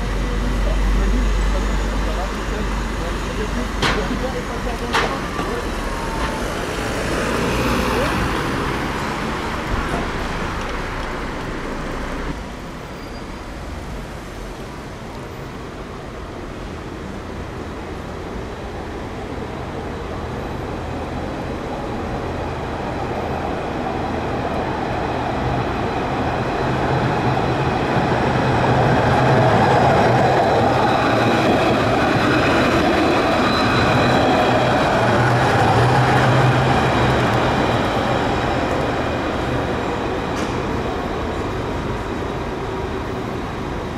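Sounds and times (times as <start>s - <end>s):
street traffic: 0.0s - 43.9s
tram humming and whining: 0.0s - 43.9s.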